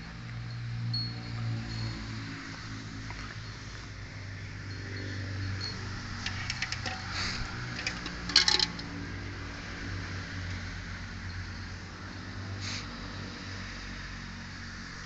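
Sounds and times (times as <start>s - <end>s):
metal bowl clinking: 6.2s - 9.0s.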